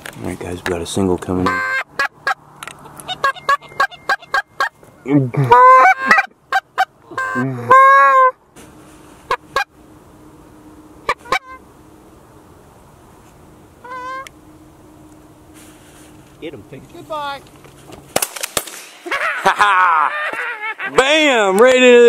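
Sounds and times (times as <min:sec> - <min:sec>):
goose call clucks: 0:01.4 - 0:08.4, 0:09.2 - 0:09.7, 0:11.0 - 0:11.6, 0:13.8 - 0:14.4
goose call honks: 0:01.4 - 0:08.4, 0:11.0 - 0:11.6, 0:13.8 - 0:14.3.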